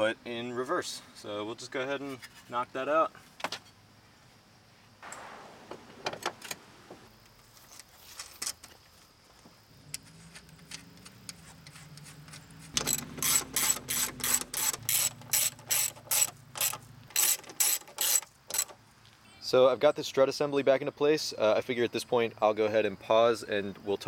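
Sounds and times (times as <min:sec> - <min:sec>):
socket ratchet clicking: 0:10.7 - 0:18.8.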